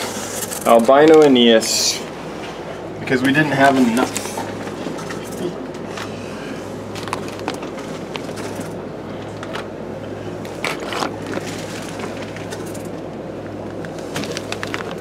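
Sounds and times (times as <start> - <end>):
steady low hum: 0.0 - 15.0
plastic bags crinkling: 10.6 - 12.9, 14.0 - 15.0.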